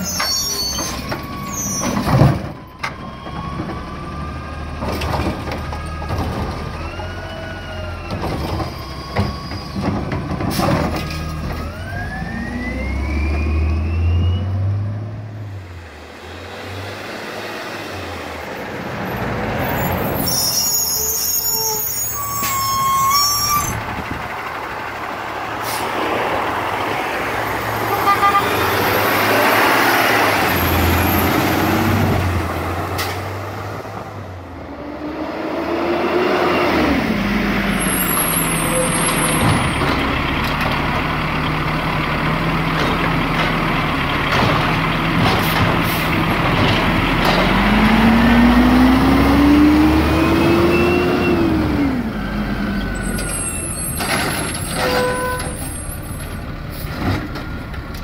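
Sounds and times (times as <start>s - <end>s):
garbage truck engines revving: 0.0s - 58.0s.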